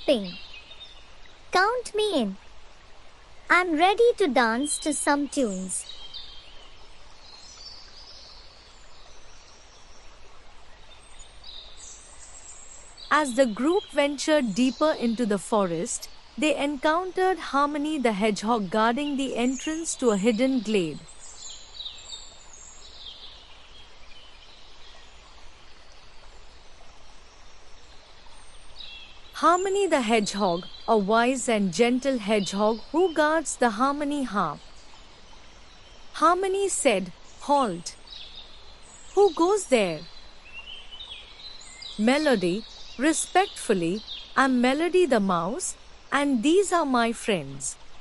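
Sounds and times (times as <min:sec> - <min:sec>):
steady soft hiss: 0:00.0 - 0:48.0.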